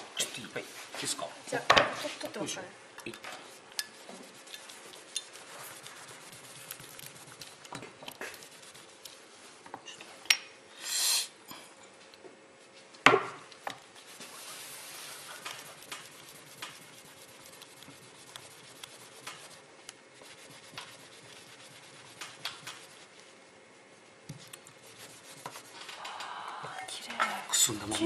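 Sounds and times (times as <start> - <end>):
sandpaper rubbing: 4.0 - 7.6, 8.2 - 9.0, 13.9 - 23.3, 24.6 - 25.8
brief hiss: 10.8 - 11.4.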